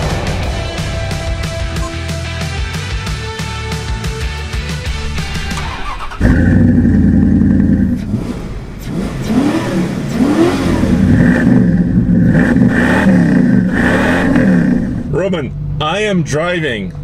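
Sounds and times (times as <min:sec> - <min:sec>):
truck engine revving: 0:04.6 - 0:16.0.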